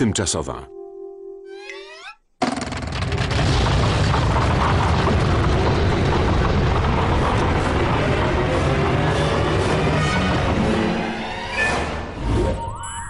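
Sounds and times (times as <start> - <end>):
cartoon explosion roar: 2.4 - 10.5.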